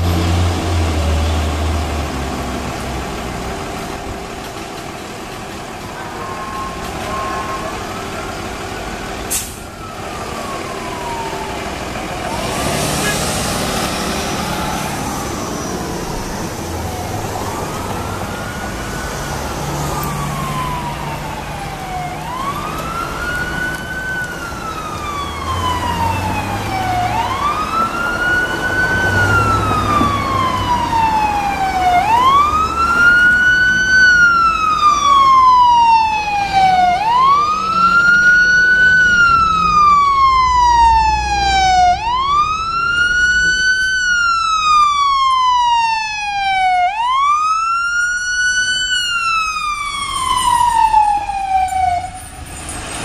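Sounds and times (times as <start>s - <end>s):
low engine rumble: 0.0s - 12.4s
emergency vehicle siren wailing: 0.0s - 53.0s
traffic rumble: 0.0s - 53.0s.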